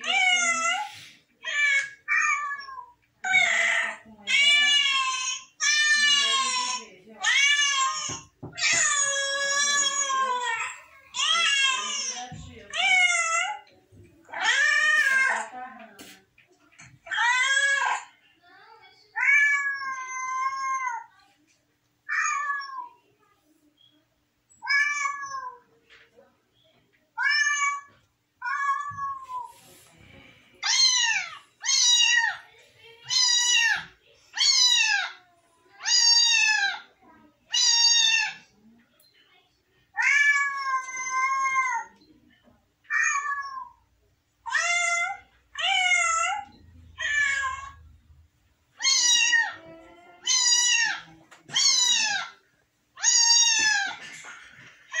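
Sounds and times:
cat meowing: 24.6s - 25.6s, 44.5s - 47.8s, 48.8s - 52.4s, 53.0s - 54.0s.

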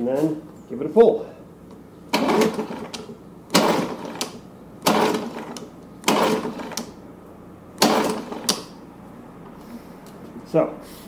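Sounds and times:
outboard engine recoil pull-start: 2.1s - 7.0s, 7.8s - 8.8s.

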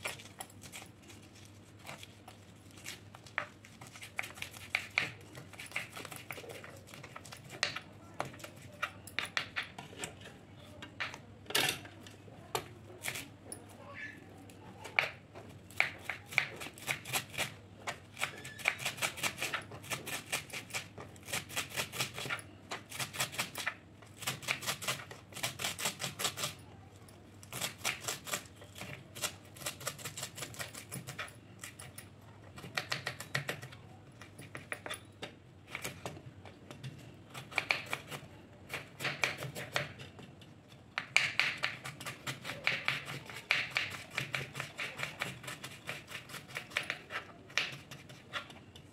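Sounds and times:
knife chopping on wooden board: 37.3s - 40.0s, 41.0s - 48.4s.

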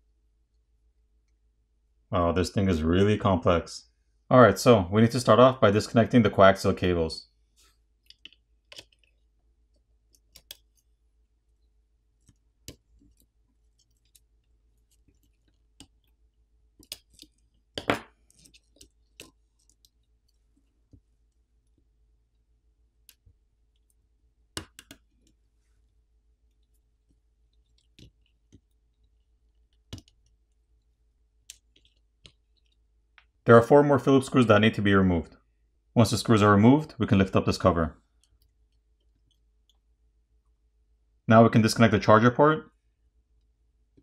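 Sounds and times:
faint clicks and taps: 7.6s - 33.4s, 38.0s - 40.6s, 43.3s - 44.0s.

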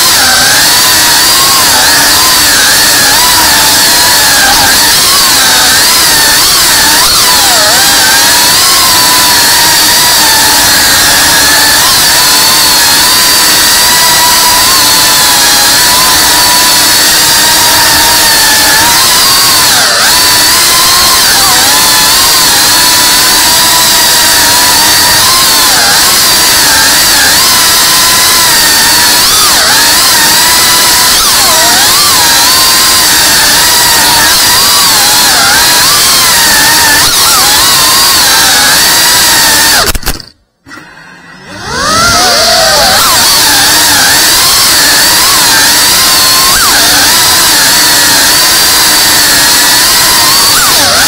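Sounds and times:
drone motors whining: 0.0s - 51.0s.

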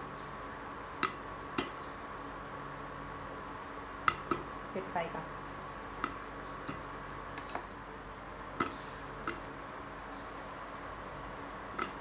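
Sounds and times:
faint steady hum: 0.0s - 12.0s
corn kernels popping in a pan: 0.9s - 1.8s, 4.0s - 4.6s, 5.9s - 7.5s, 11.7s - 12.0s.

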